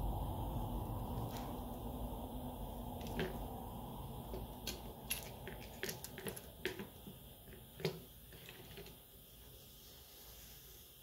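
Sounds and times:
plastic parts clicking and tapping: 4.3 - 9.0.

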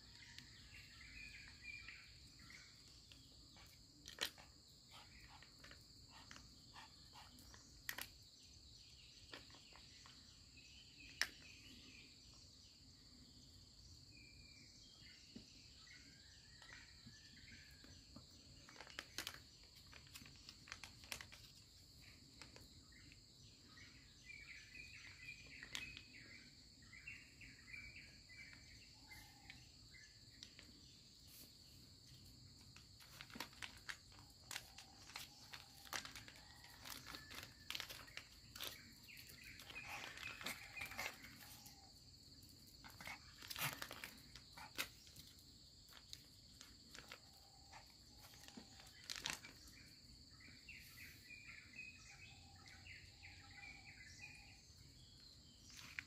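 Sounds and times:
bird chirps: 21.5 - 56.0.

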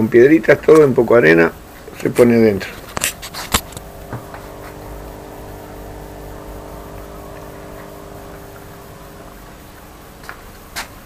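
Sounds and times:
mechanical hum: 1.5 - 11.0
low rumble: 2.8 - 9.8.

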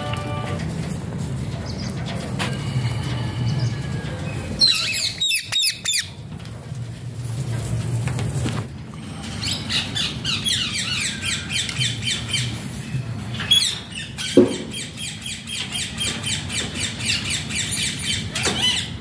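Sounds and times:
parakeets squawking: 3.4 - 6.2, 9.2 - 12.7, 13.4 - 19.0.

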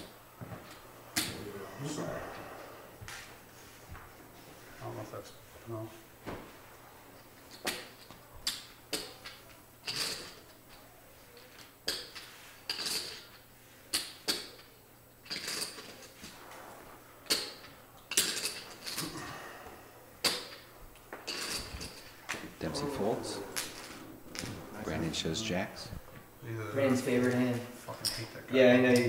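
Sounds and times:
poker chips clattering: 15.2 - 16.1.

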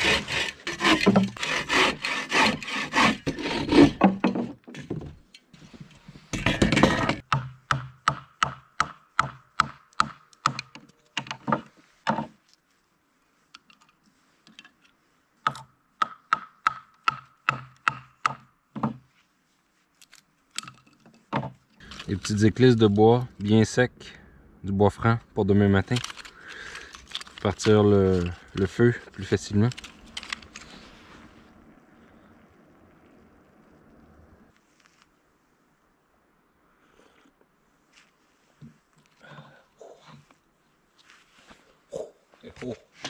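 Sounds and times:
bow saw cutting wood: 0.0 - 4.2
sharp wooden knocks splitting wood: 0.0 - 5.1, 6.4 - 12.4, 15.4 - 19.0.

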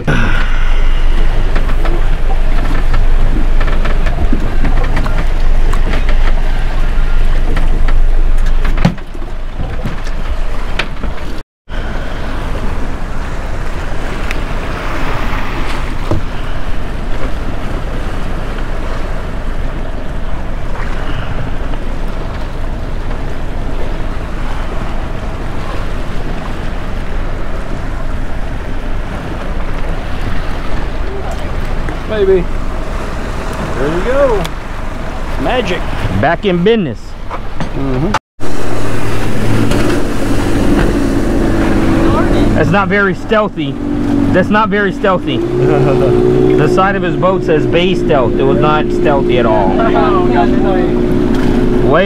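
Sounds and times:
wind rushing over microphone: 0.0 - 36.2, 38.4 - 52.0
water lapping around boat: 0.0 - 52.0.

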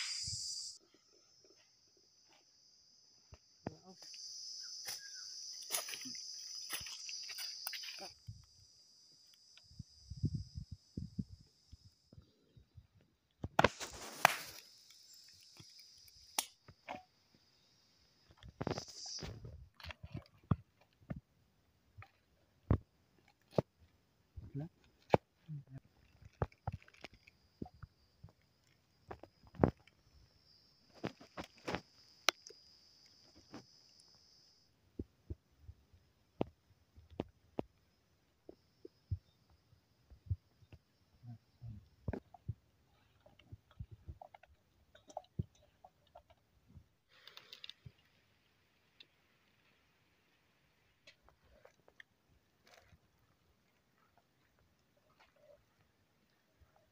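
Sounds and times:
steady high hiss: 0.0 - 0.8, 13.6 - 19.5
high insect drone: 0.0 - 12.8, 13.6 - 20.5, 25.6 - 42.3.

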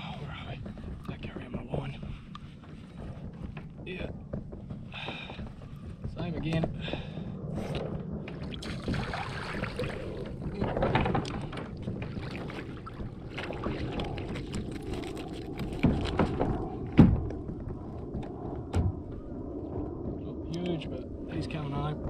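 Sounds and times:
water splashing: 8.4 - 16.4.

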